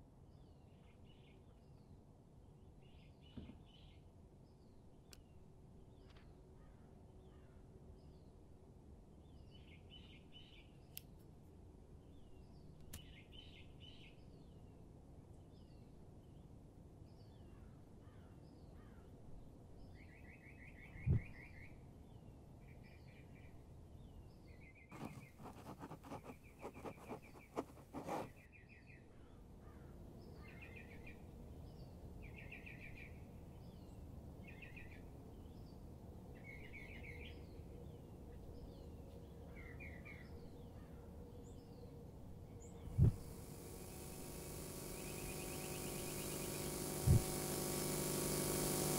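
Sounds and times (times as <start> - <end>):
low steady hum: 42.0 - 48.9.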